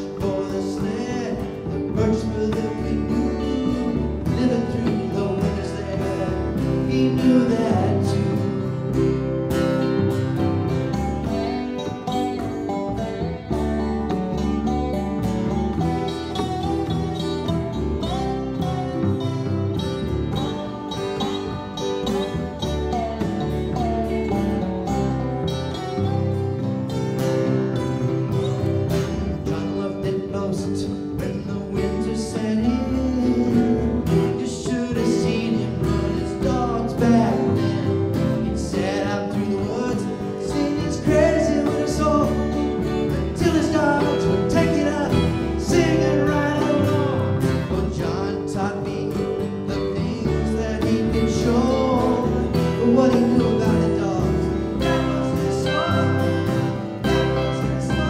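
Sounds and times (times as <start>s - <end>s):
acoustic guitar: 0.0s - 58.0s
dobro: 0.0s - 58.0s
drum kit: 0.0s - 58.0s
upright bass: 0.0s - 58.0s
string section: 51.4s - 58.0s.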